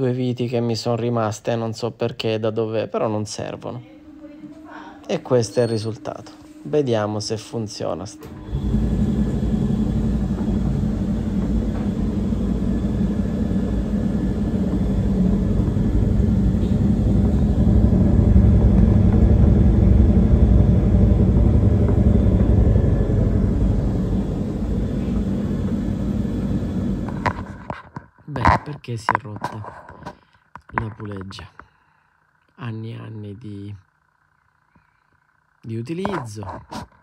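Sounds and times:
tumble dryer rumbling and humming: 0:03.4 - 0:27.8.

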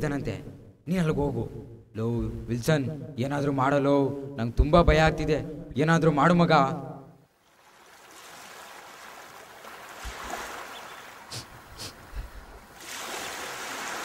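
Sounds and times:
surf washing onto beach: 0:07.6 - 0:11.9, 0:12.5 - 0:14.0.

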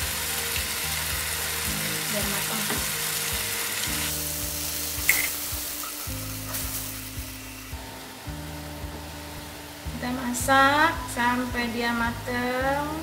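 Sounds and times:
paste sizzling in oil: 0:00.0 - 0:10.3.

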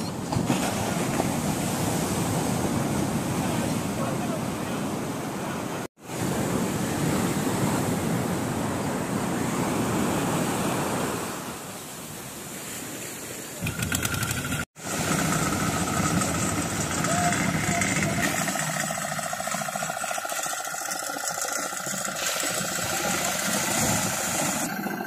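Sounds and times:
surf breaking on beach: 0:13.6 - 0:20.0, 0:21.6 - 0:25.0.

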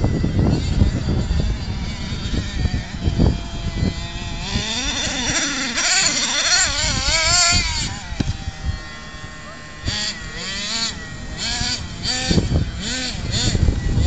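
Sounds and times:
small engine revving whine: 0:00.0 - 0:14.0.

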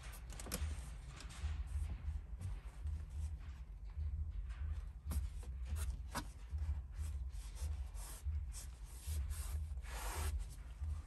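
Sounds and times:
towel wiping touchscreen: 0:07.4 - 0:10.6.

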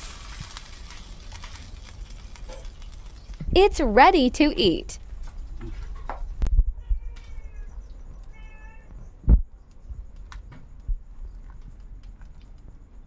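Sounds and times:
high-pitched animal calls: 0:06.8 - 0:09.0.

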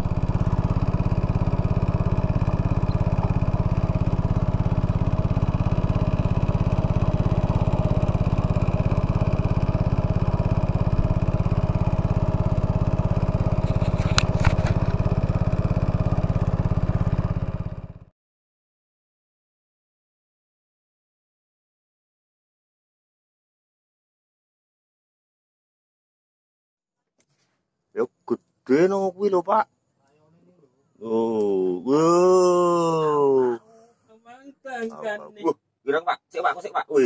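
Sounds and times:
boat engine running: 0:00.0 - 0:18.1.

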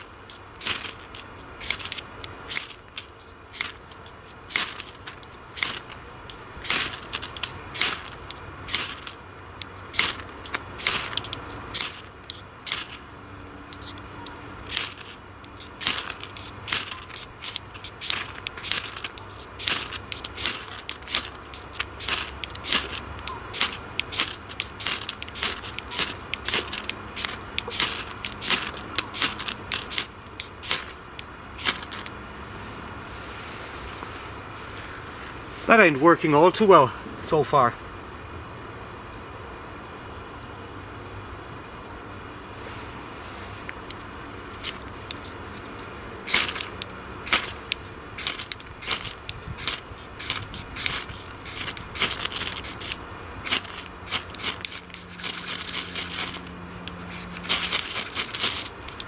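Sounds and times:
ferro rod scraping: 0:00.0 - 0:32.1, 0:46.3 - 0:59.0.

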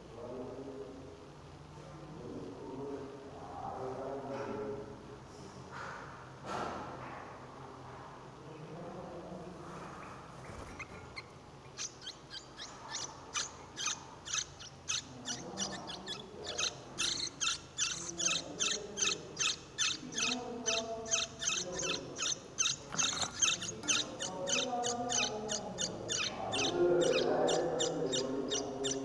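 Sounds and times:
nestlings chirping rapidly: 0:10.4 - 0:29.0.

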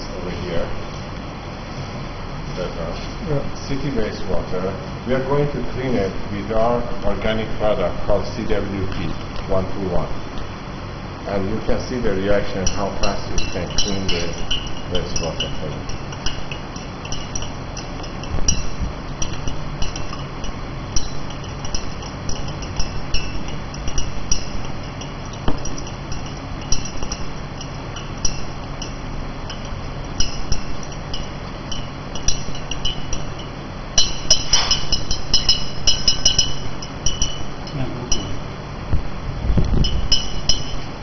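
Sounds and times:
spatula clinking on glass beaker: 0:12.4 - 0:38.4, 0:39.8 - 0:40.9.

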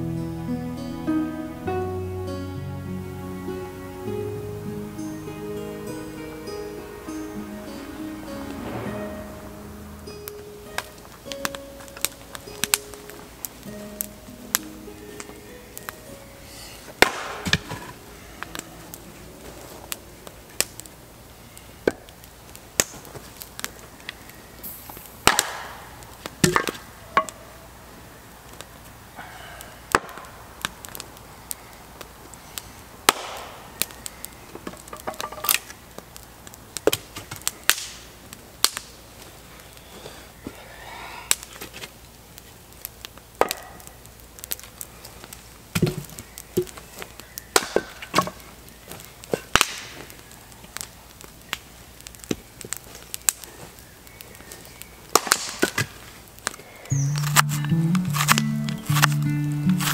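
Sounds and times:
axe chopping wood: 0:17.0 - 0:17.8, 0:26.4 - 0:26.8, 0:33.1 - 0:33.5, 0:57.0 - 0:59.9.

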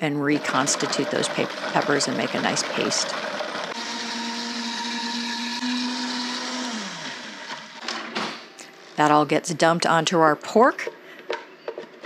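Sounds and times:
blender running: 0:00.1 - 0:09.1.

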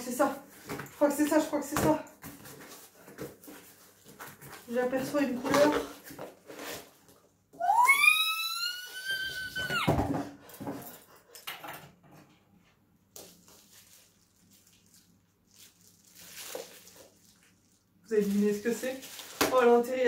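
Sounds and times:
woman squealing excitedly: 0:07.6 - 0:10.0
plastic bag crinkling: 0:13.3 - 0:20.0.

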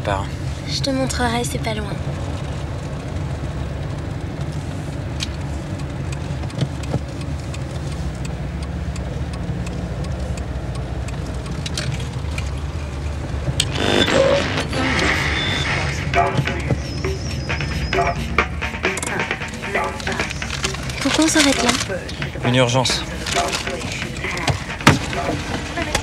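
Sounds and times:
car engine and road rumble: 0:00.0 - 0:26.0
faint clicks: 0:04.2 - 0:14.3.

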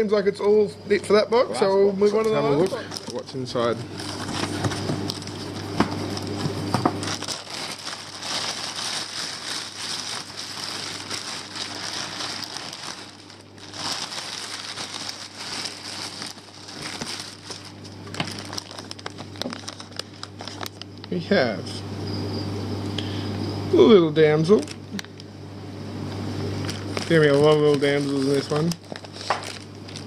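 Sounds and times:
plastic sheeting crinkling: 0:02.8 - 0:20.8, 0:26.6 - 0:30.0.

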